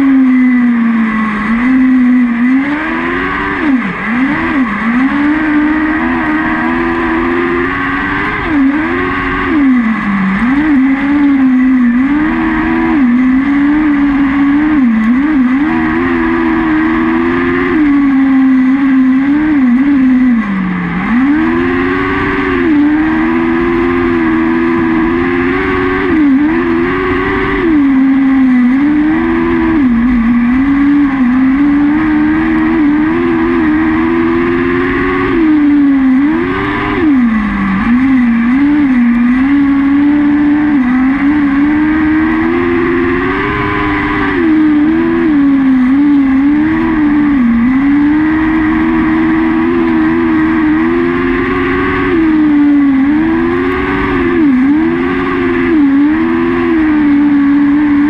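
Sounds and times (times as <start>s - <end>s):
motorcycle engine running hard: 0.0s - 58.0s.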